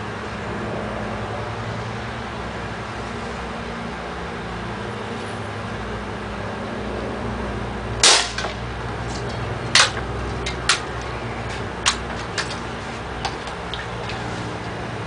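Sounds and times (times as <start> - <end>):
air rifle firing: 8.0 - 8.6.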